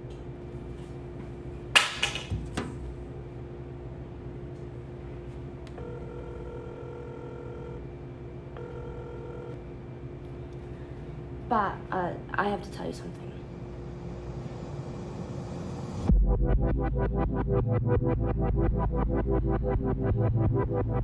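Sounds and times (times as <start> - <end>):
low steady hum: 0.0 - 16.6
phone ringback tone: 5.8 - 7.9, 8.6 - 9.6.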